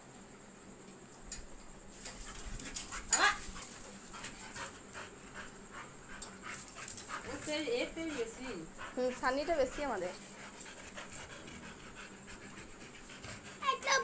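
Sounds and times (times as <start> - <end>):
dog high cry: 2.9 - 3.6
dogs scuffling: 6.4 - 11.7.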